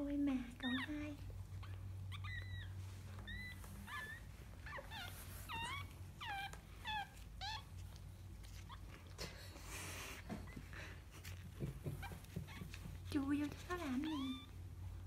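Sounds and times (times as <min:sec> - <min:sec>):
dog whimpering: 0:00.5 - 0:09.4, 0:13.7 - 0:14.7.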